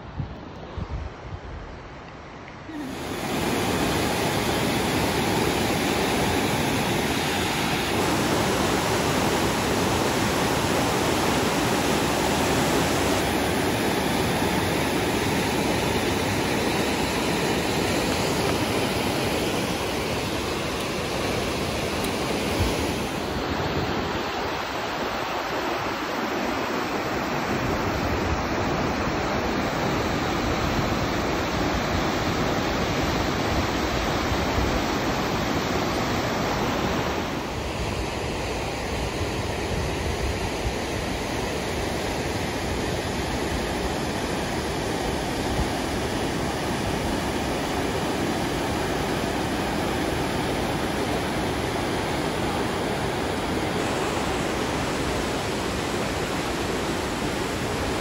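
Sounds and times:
river rushing over rocks: 2.6s - 58.0s.

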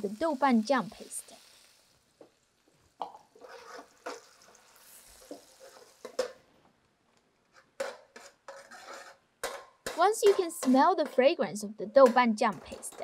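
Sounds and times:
paste sizzling in hot oil: 0.0s - 6.4s
spatula scraping and tapping wok: 3.0s - 6.4s, 7.4s - 13.0s.

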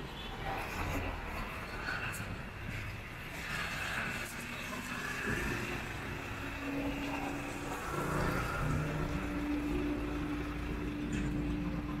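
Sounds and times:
street traffic rumble: 0.0s - 12.0s.

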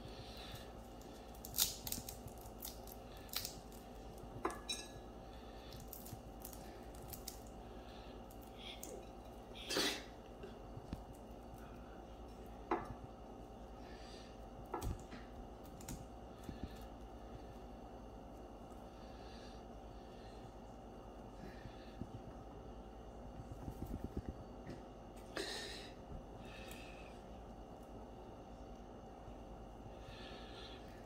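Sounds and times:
chestnut shells cracking: 0.6s - 4.9s, 5.7s - 7.6s.

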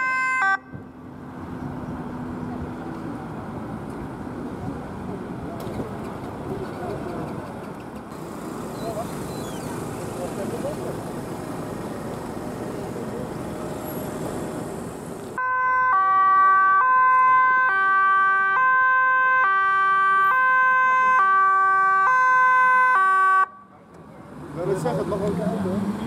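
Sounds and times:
two-tone police siren: 0.0s - 0.8s, 15.4s - 23.6s
outdoor noise: 0.0s - 26.0s.

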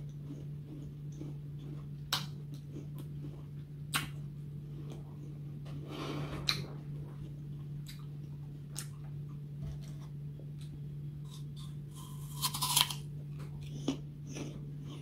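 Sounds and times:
teeth crunching apple: 0.0s - 4.3s, 11.2s - 15.0s
low hum: 0.0s - 15.0s.

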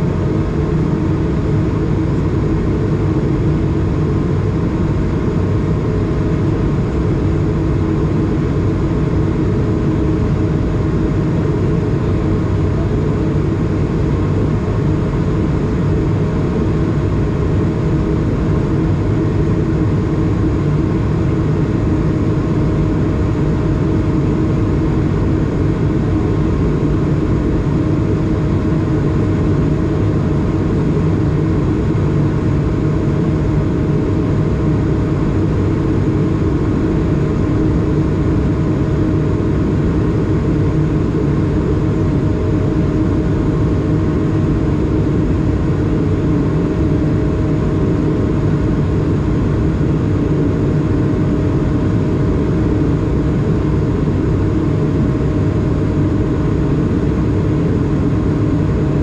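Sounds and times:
airplane cabin engine drone: 0.0s - 59.0s.

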